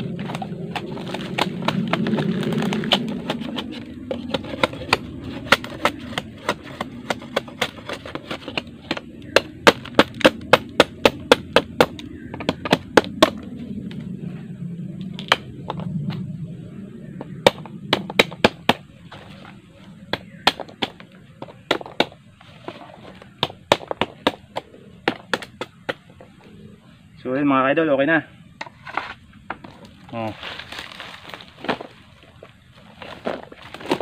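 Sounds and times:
knife chopping bamboo: 0.2 - 13.4, 17.5 - 18.8, 20.1 - 22.2.

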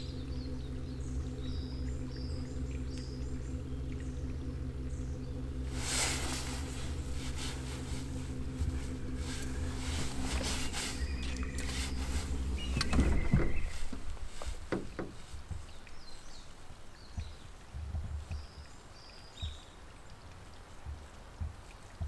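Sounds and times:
small motor humming: 0.0 - 16.4
sharp clicks and knocks: 8.4 - 16.0.

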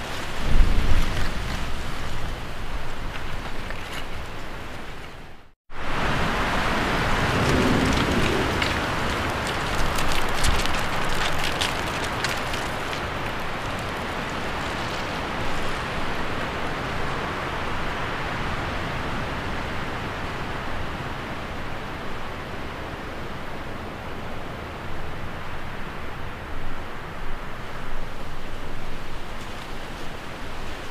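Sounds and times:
crackles: 7.1 - 16.6.

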